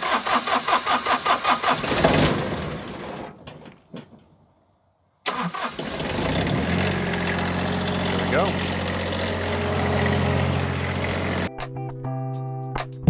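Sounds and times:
diesel engine firing: 0.0 - 3.6, 5.2 - 11.5
diesel engine starter cranking: 0.0 - 3.6, 5.2 - 11.5.

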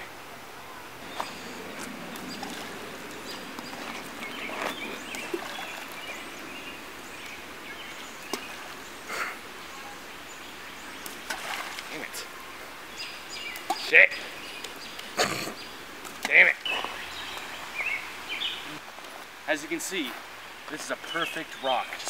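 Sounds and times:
outdoor background hiss: 0.0 - 22.0
stones splashing into water: 11.0 - 12.0.

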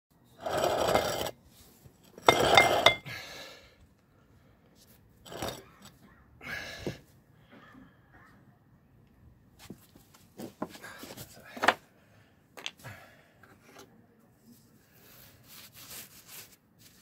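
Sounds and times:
rustling scraping noise: 0.3 - 3.0, 14.5 - 17.0.

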